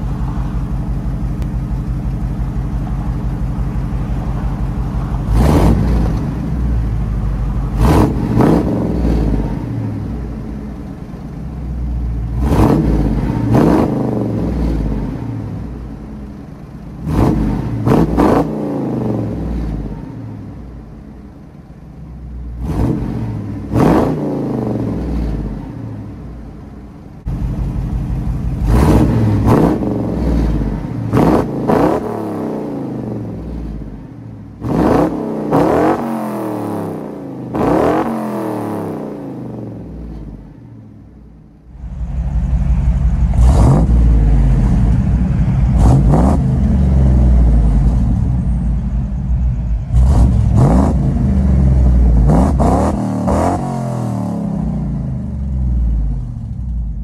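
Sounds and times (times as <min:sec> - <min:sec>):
engine idling: 0:00.0 - 0:35.6, 0:39.0 - 0:53.5, 0:54.5 - 0:57.0
engine revving in blips: 0:05.2 - 0:06.8, 0:07.5 - 0:10.5, 0:12.3 - 0:15.8, 0:17.0 - 0:20.5, 0:22.5 - 0:26.0, 0:28.6 - 0:40.4, 0:41.8 - 0:48.9, 0:49.8 - 0:56.8.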